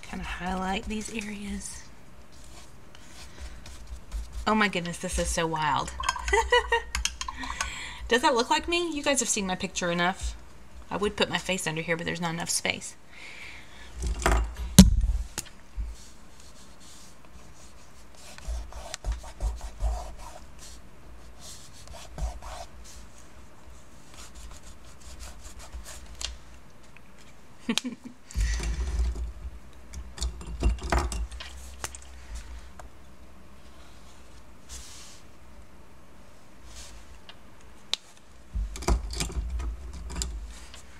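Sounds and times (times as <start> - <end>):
crayon scraping on paper: 21.4 - 22.7.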